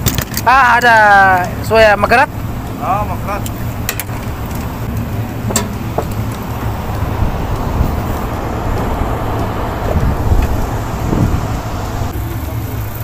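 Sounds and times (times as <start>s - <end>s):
condenser fans rushing drone: 0.0s - 13.0s
low hum: 1.4s - 13.0s.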